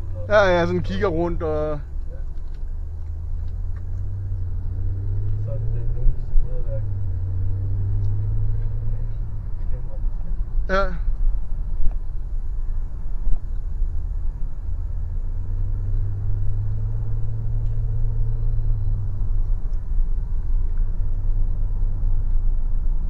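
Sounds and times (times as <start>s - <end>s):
car engine and tyre rumble: 0.0s - 23.0s
deep engine drone: 0.0s - 23.0s.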